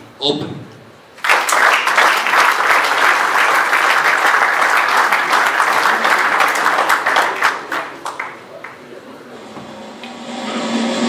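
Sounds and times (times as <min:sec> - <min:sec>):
audience applauding: 0:01.2 - 0:09.1.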